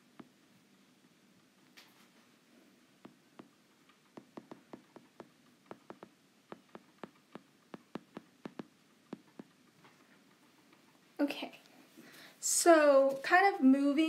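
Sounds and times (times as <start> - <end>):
stylus tapping on tablet screen: 3.0 - 9.6.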